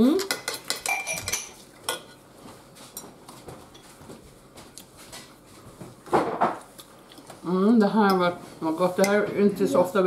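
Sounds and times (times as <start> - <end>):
cutlery clinking on plate: 0.2 - 2.1.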